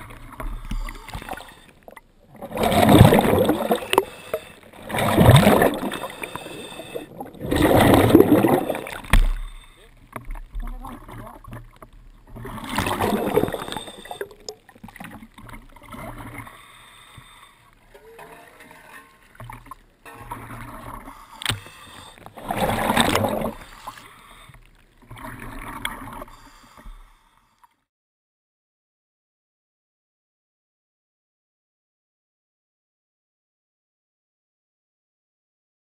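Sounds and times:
water sloshing and splashing: 0.0 - 27.7.

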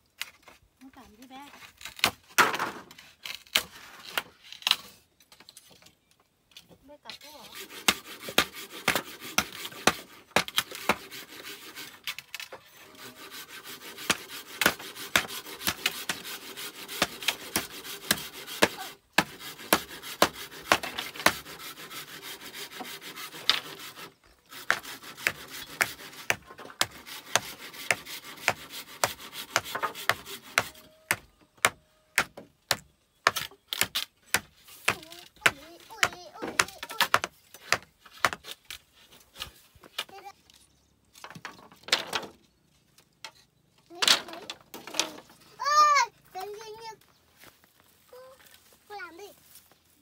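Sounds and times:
metal scraping on bamboo: 0.1 - 50.0
machete striking bamboo: 16.9 - 21.4.

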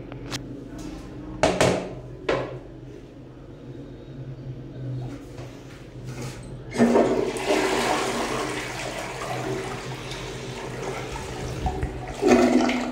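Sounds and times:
toilet flushing: 6.2 - 12.9.

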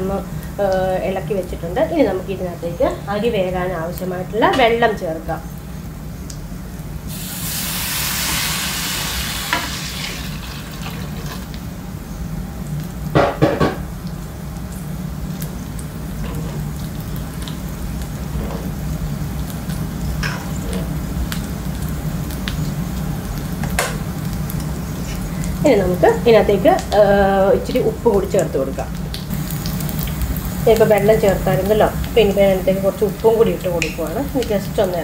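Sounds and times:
water hissing in hot fat: 0.0 - 13.1, 13.8 - 35.0
low steady sizzle: 0.0 - 35.0.

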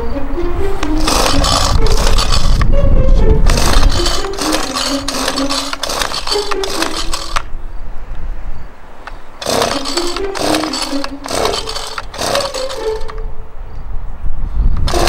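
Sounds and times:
pull cord being yanked: 0.8 - 2.7, 3.4 - 7.5, 9.4 - 13.2
small engine sputtering: 0.8 - 7.5, 9.4 - 13.2.

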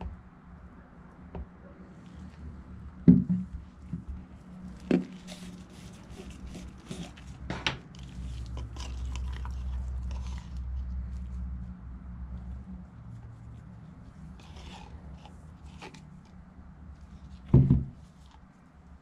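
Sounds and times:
low steady hum: 0.0 - 19.0
small clicks and scrapes: 3.8 - 11.6, 12.3 - 19.0.

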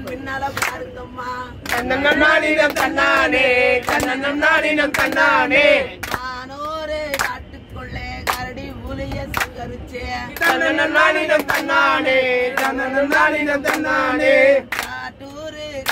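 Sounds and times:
group singing folk song: 0.0 - 15.9
hand claps: 1.6 - 1.9, 2.6 - 4.2, 6.0 - 6.3, 7.1 - 7.4, 8.2 - 8.5, 9.1 - 9.6, 11.3 - 11.8, 12.5 - 14.0, 14.6 - 15.1.

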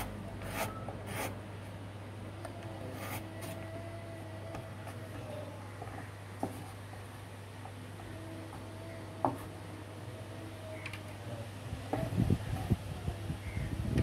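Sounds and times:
wind buffeting the microphone: 12.0 - 14.0.

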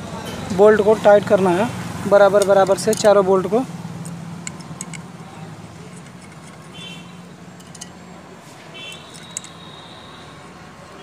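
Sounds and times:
small metallic tool clicks: 4.0 - 5.1, 8.9 - 9.6.

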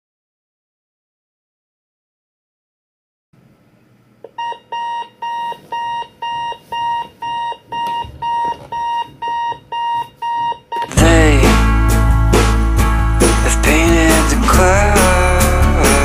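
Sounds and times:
alarm clock beeping: 4.4 - 10.9.

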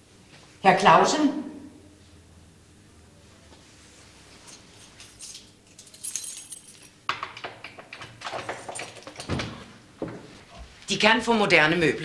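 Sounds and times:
keys jingling: 4.4 - 7.1.

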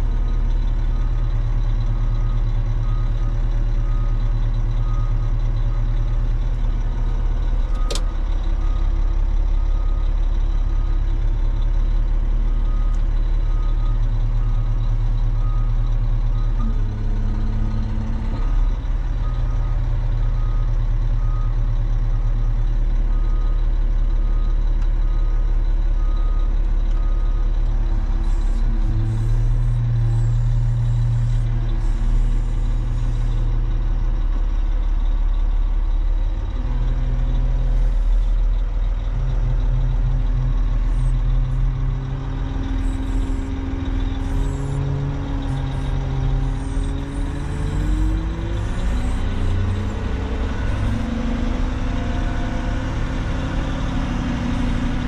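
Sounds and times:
diesel engine running: 0.0 - 55.0
reversing alarm beeping: 39.1 - 55.0.

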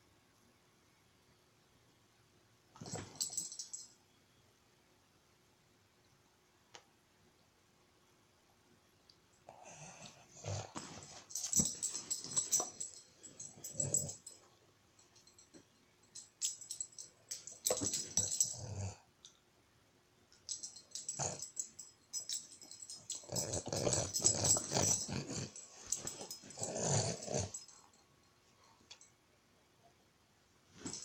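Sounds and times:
dog growling playfully: 9.9 - 12.6, 17.7 - 19.0, 22.9 - 27.8.

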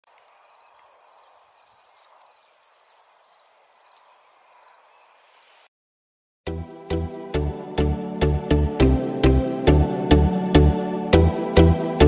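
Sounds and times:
faint outdoor hiss: 0.0 - 5.7
cricket chirping: 0.1 - 5.7.

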